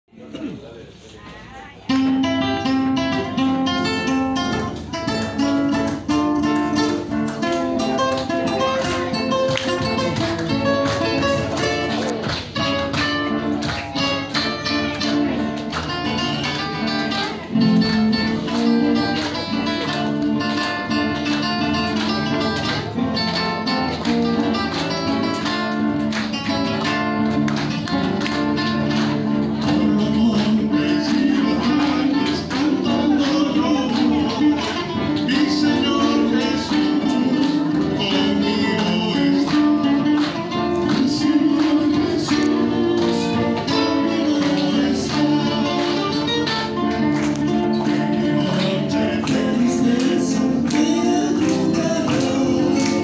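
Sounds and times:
acoustic guitars playing: 1.6s - 53.0s.

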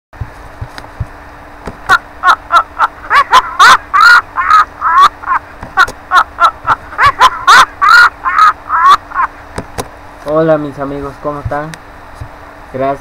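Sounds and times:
baby giggling: 1.8s - 9.4s.

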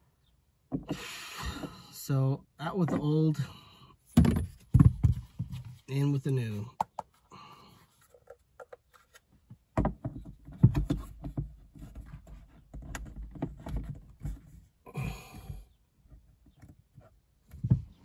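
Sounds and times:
plastic knocks and rubbing: 4.2s - 5.8s, 8.1s - 14.5s, 16.5s - 18.0s.

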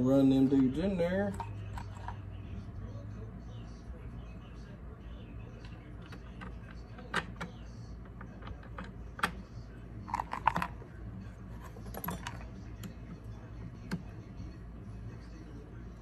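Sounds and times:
metal screws and tools clattering: 11.6s - 12.5s.

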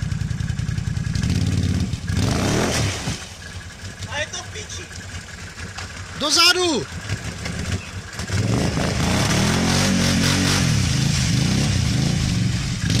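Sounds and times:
quad engine revving: 1.1s - 3.2s, 6.3s - 13.0s.

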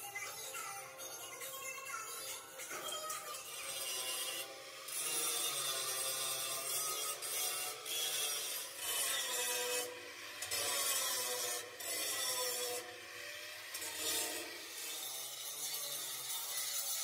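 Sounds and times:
angle grinder grinding steel: 0.0s - 17.0s.

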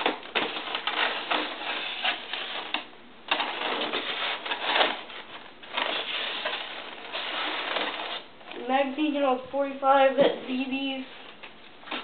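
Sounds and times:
cardboard scraping and rustling: 0.0s - 8.6s.

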